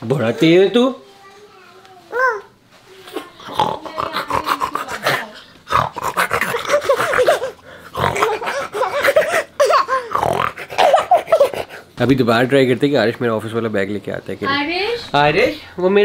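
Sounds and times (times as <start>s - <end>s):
toddler babbling and squealing: 1.6s - 3.2s.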